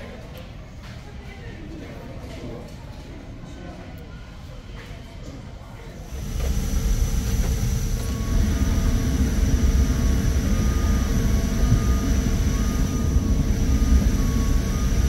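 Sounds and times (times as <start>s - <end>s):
airliner cabin rumble and hum: 6.0s - 15.0s
thin high whine: 6.0s - 15.0s.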